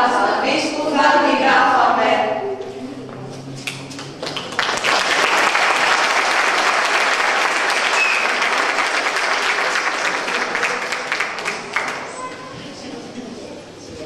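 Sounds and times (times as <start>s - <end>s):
audience applauding: 3.6s - 12.3s.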